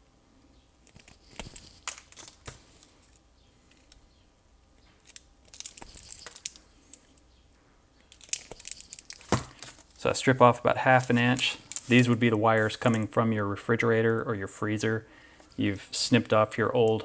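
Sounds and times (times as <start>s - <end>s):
insulation crinkling rustle: 0.8s - 3.2s, 4.8s - 7.2s, 8.0s - 13.2s.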